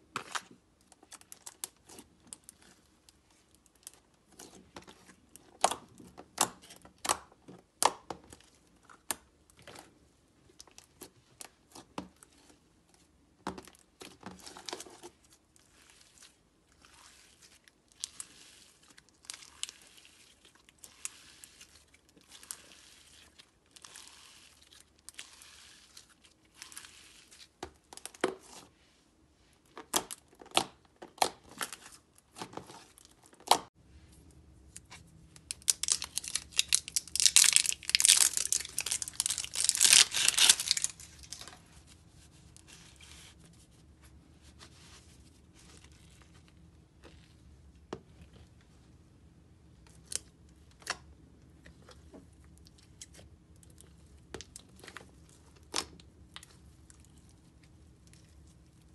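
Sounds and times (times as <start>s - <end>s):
slime popping and crackling: 35.5s - 41.4s.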